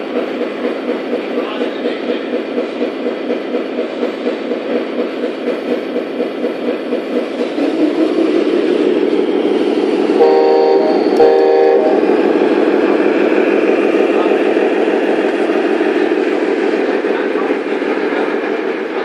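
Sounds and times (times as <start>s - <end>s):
simulated diesel engine: 0.0s - 19.0s
air horn blasts: 10.2s - 12.1s.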